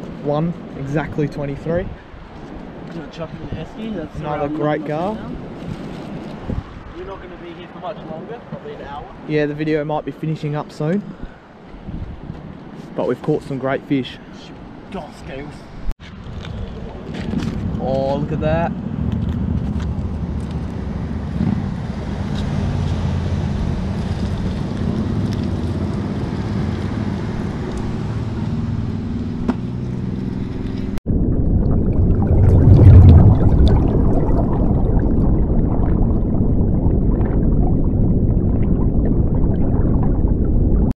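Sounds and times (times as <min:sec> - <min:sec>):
wind buffeting microphone: 0:00.0 - 0:09.3, 0:11.0 - 0:13.0, 0:14.6 - 0:41.0
dense rushing noise: 0:30.9 - 0:40.9.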